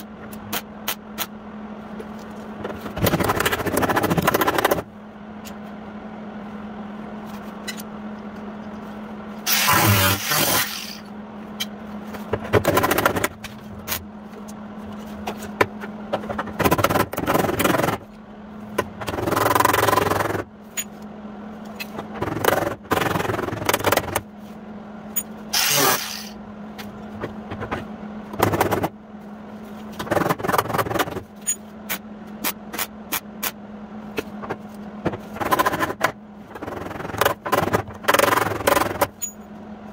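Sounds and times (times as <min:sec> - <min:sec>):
welder hum: 0:09.4 - 0:11.1, 0:25.5 - 0:26.4
welding arc crackle: 0:09.5 - 0:11.0, 0:25.6 - 0:26.4.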